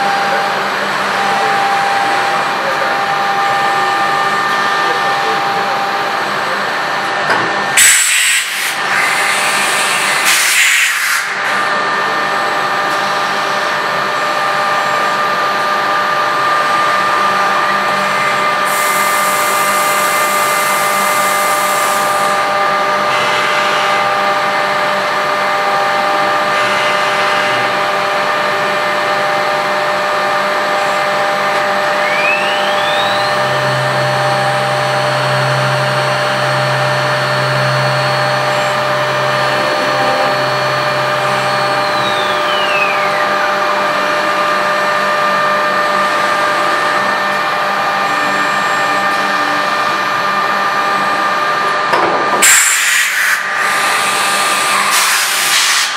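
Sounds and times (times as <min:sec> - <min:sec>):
cnc machine whining: 0:00.0 - 0:55.9
wood cutting bursts: 0:31.9 - 0:51.6, 0:53.0 - 0:55.9.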